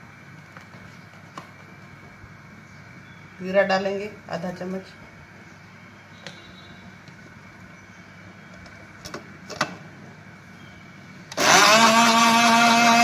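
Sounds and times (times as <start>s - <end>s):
blender motor whirring: 11.3s - 13.0s.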